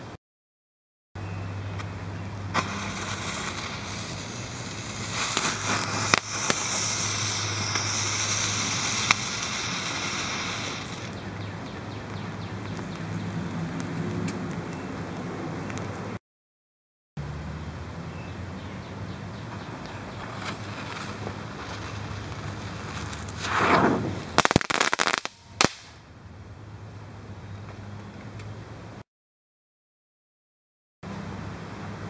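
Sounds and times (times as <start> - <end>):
firework cracks and pops: 2.5 - 11.2, 19.5 - 26.0
firework fountain hissing: 2.5 - 11.4, 19.5 - 25.9.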